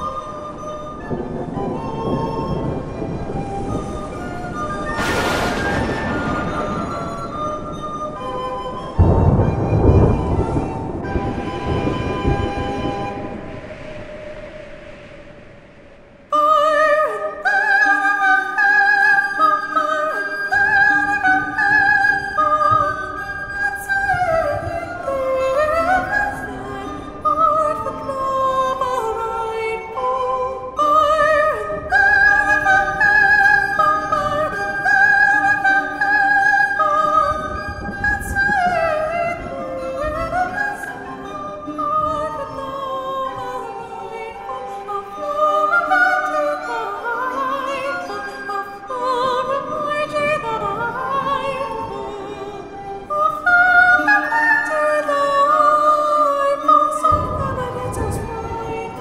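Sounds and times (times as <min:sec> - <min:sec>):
recorders playing: 0:00.0 - 0:13.0
soprano singing with vibrato: 0:00.0 - 0:15.2, 0:16.2 - 0:59.0.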